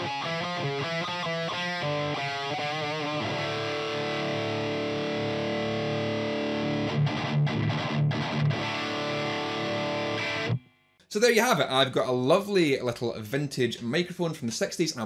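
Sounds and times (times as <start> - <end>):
electric guitar: 0.0 - 10.6.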